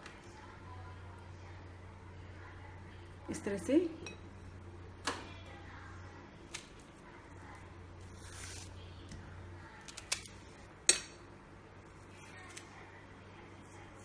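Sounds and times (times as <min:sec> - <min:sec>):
banana peel rustling: 0:08.0 - 0:08.8.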